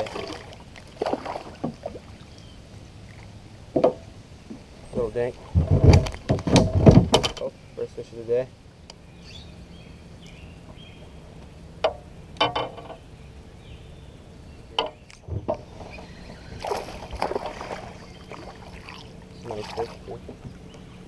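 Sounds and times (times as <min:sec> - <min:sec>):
fish splashing at the surface: 0:00.0 - 0:02.0, 0:16.5 - 0:20.0
water lapping around a kayak: 0:00.0 - 0:03.7, 0:15.6 - 0:21.0.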